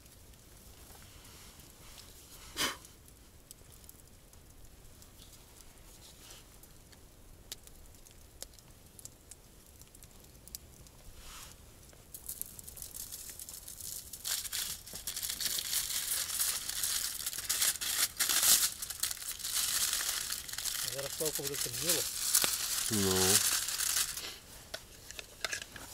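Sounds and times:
crisp crinkling and crackling: 7.6s - 25.9s.

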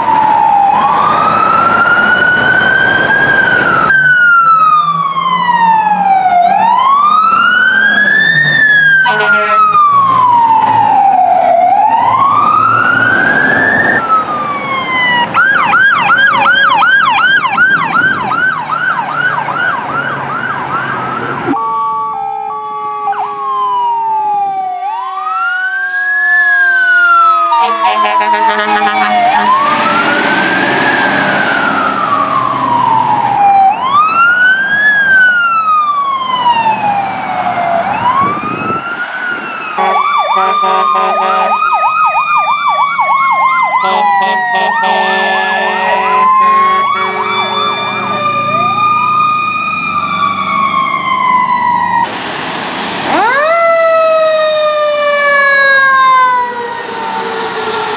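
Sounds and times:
siren wailing: 0.0s - 52.1s, 53.0s - 57.9s
siren yelp: 0.0s - 52.1s, 53.1s - 57.9s
horn blast: 9.0s - 9.8s, 27.5s - 30.3s, 39.8s - 41.6s, 43.8s - 48.4s.

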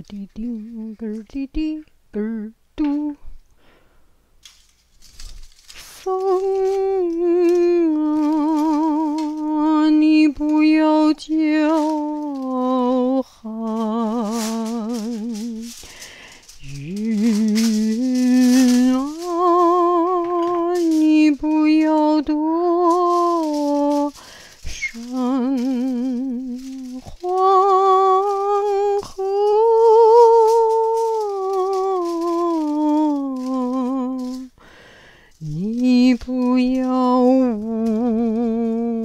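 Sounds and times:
woman humming a slow melody: 6.0s - 15.8s, 16.6s - 34.6s, 35.4s - 39.0s.

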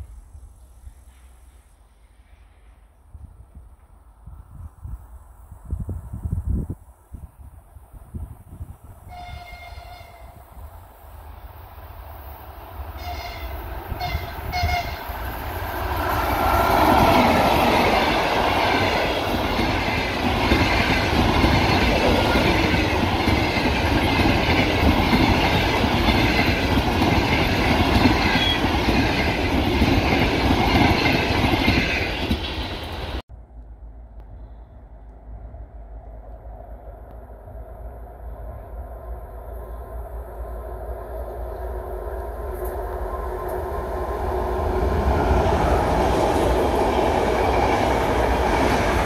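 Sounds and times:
passenger train passing: 0.0s - 49.0s
train horn toots: 9.0s - 10.6s, 13.0s - 15.1s.

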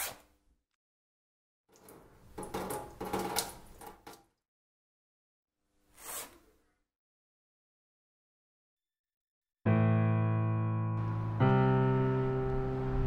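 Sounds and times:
knocks and clattering: 2.3s - 4.2s.

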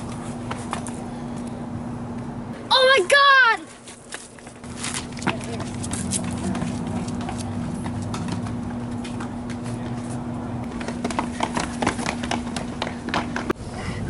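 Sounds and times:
steady low hum: 0.0s - 2.7s, 3.7s - 14.0s
footsteps running on concrete: 3.9s - 13.6s.

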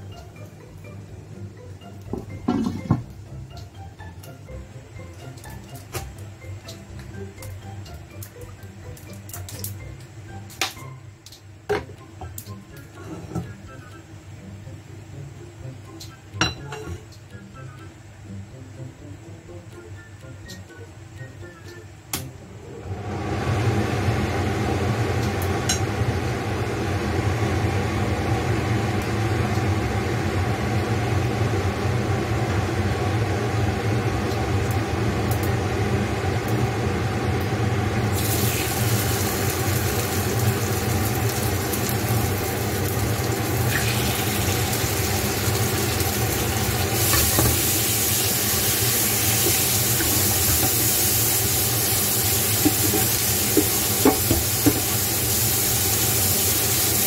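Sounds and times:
meat sizzling in hot oil: 38.0s - 57.0s.

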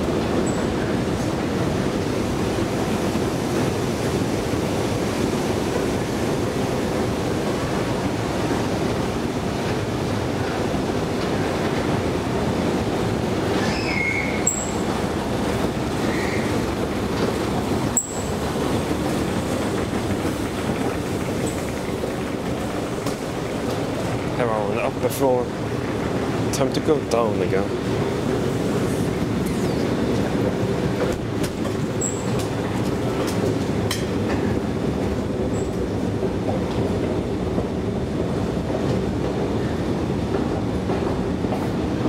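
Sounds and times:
escalator mechanical rumble: 6.5s - 39.6s.

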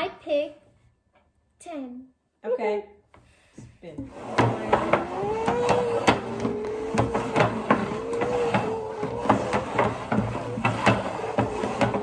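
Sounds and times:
plastic bowls scraping on wood: 4.0s - 12.0s.

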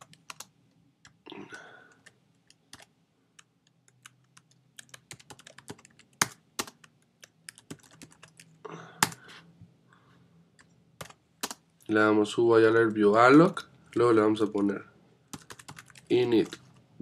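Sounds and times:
computer keyboard typing: 0.0s - 1.2s, 1.9s - 9.2s, 11.0s - 11.6s, 15.3s - 16.6s.

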